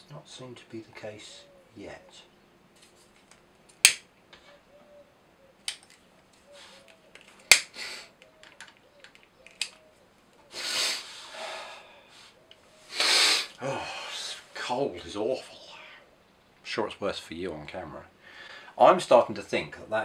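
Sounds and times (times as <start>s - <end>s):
faint flame hiss: 9.3s - 18.9s.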